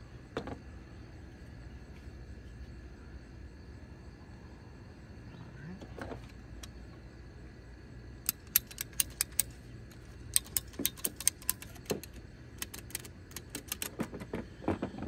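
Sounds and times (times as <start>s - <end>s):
hose cutter ratchet clicking: 8.2s - 14.1s.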